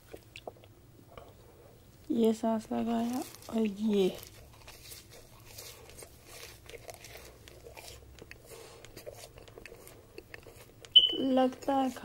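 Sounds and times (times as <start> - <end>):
chewing crunchy fried food: 0.0 - 12.0.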